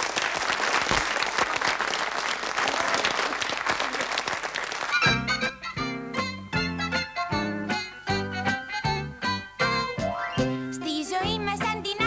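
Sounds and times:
audience applauding: 0.0 - 5.5
band playing lively tune: 4.9 - 12.0.

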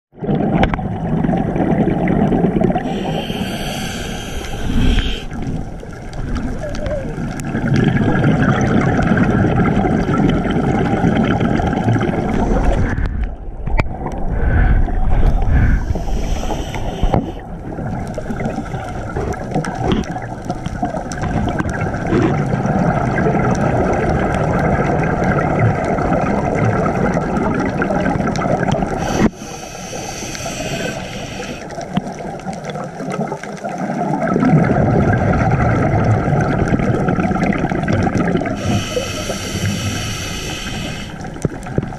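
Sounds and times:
underwater watery rumble: 0.1 - 41.9
thin high hiss: 2.9 - 5.3.

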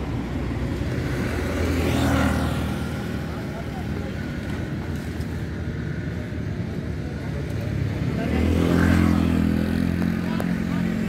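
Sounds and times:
vehicle engines running: 0.0 - 11.0.

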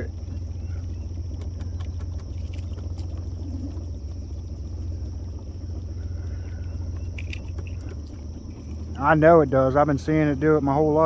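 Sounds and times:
boat motor idling: 0.0 - 11.0.

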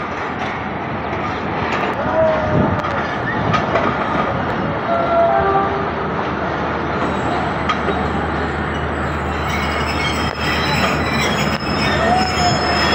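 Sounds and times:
train coaches rumbling: 0.0 - 12.9
high-pitched wheel squeal: 7.1 - 12.9.

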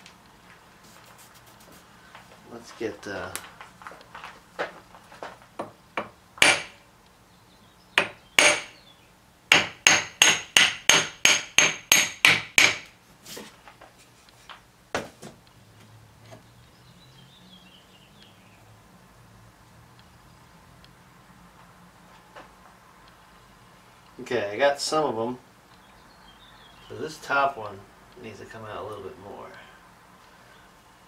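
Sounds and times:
hammer striking cast iron: 6.0 - 6.8, 8.0 - 8.8, 9.5 - 12.9.

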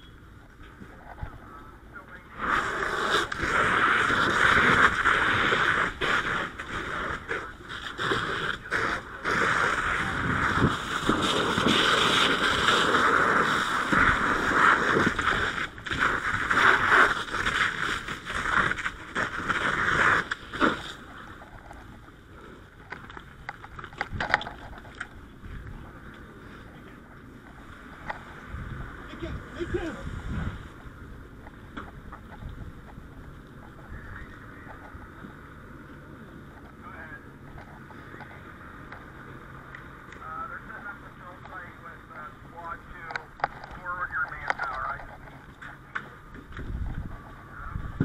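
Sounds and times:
fire hose water hissing: 2.3 - 21.4.

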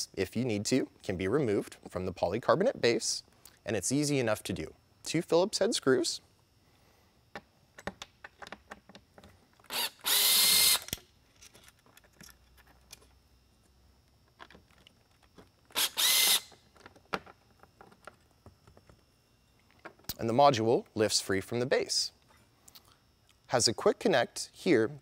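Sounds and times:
cordless drill running: 9.7 - 10.9, 15.7 - 16.5.

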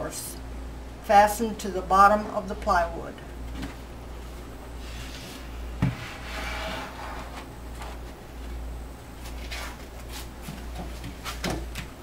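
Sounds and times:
steady low hum: 0.0 - 12.0
wood scraping: 4.9 - 8.0.

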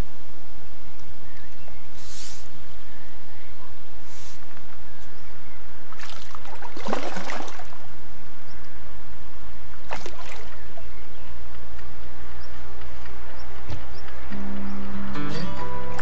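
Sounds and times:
fish splashing at water surface: 5.9 - 7.8, 9.8 - 10.8.

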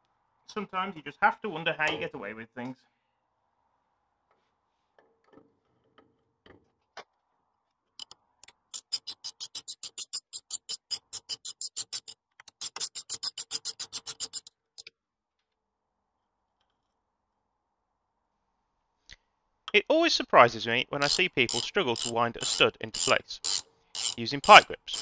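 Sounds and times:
socket ratchet clicking: 8.0 - 14.9, 21.0 - 25.0.

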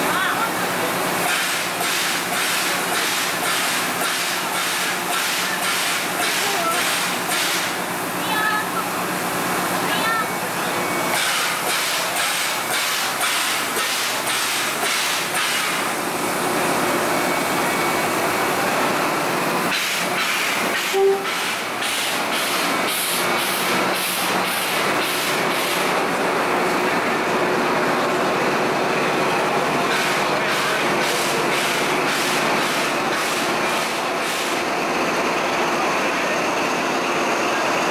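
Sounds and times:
rhythmic steam puffing: 0.1 - 37.9
steam locomotive hissing: 0.1 - 37.9
brief tone: 20.9 - 21.4.

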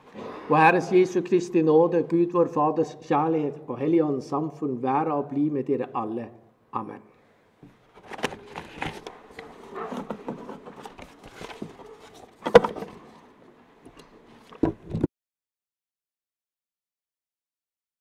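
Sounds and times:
handling clicks and rustles: 7.6 - 15.1.

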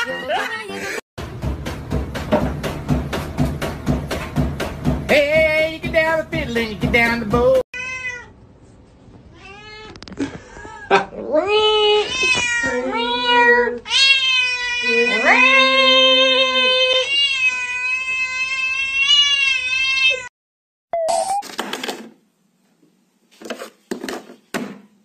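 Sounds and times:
cat yowling meows: 7.8 - 8.3, 11.3 - 20.3.

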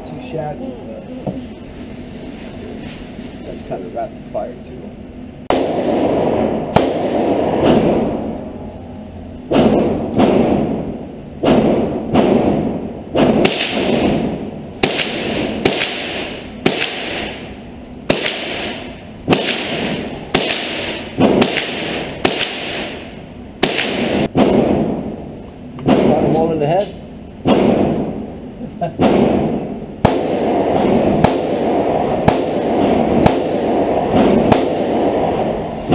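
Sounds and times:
rifle shots echoing indoors: 5.5 - 8.4, 9.5 - 26.6, 27.4 - 28.4, 29.0 - 35.9.

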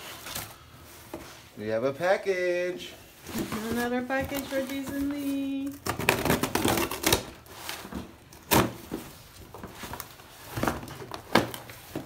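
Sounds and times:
tape and cardboard crackling: 3.2 - 12.0.

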